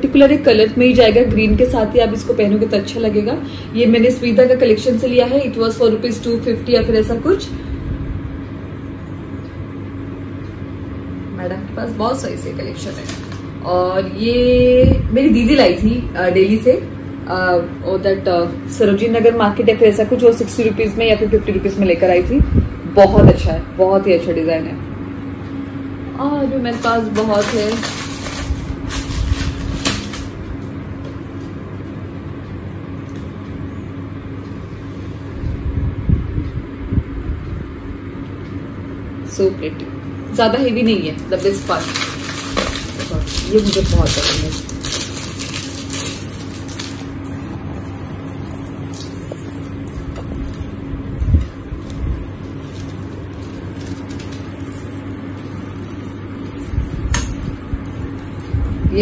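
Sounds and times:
steady low hum: 0:00.0 - 0:59.0
plastic packet crinkling: 0:41.4 - 0:47.2
metal earrings clicking and jingling: 0:41.4 - 0:58.8.

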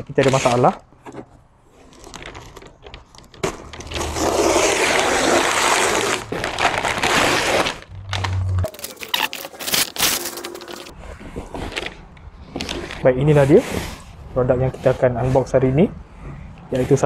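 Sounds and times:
paper ripping and rustling: 0:01.8 - 0:14.0.

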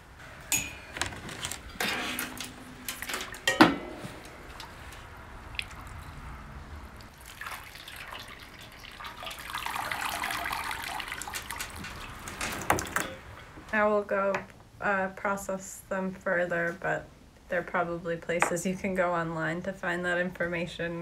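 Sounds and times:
handling knocks: 0:00.6 - 0:04.6
water splashing and streaming: 0:04.5 - 0:13.0
water pouring: 0:05.4 - 0:13.0.

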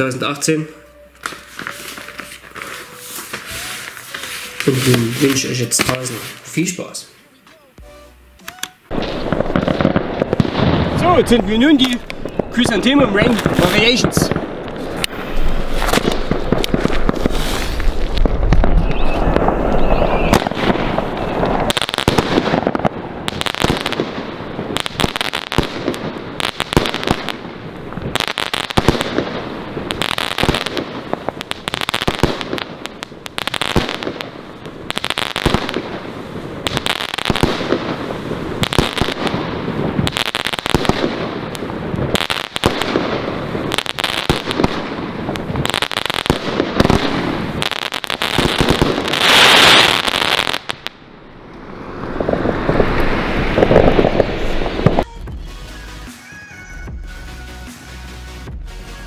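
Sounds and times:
firework crackle: 0:00.0 - 0:07.8, 0:08.9 - 0:56.7
firework battery firing: 0:08.9 - 0:51.1.

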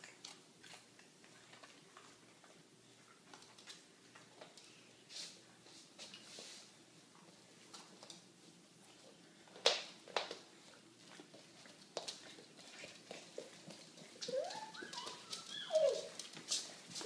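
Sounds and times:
dog whimpering: 0:14.2 - 0:16.2.

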